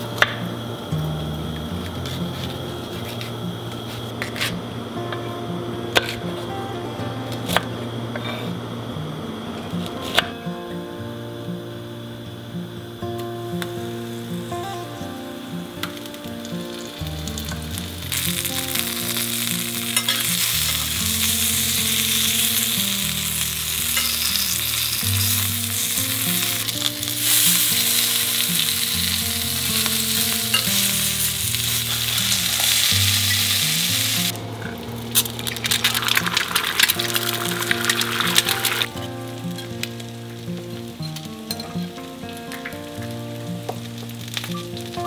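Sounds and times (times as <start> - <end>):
vegetables sizzling in oil: 12.9 - 45.0
egg frying crackle: 13.9 - 45.0.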